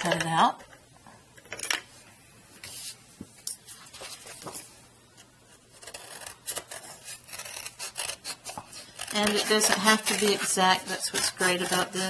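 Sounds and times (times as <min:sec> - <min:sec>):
paper rustling: 0:03.6 - 0:04.7
scissors snipping paper: 0:05.8 - 0:12.0.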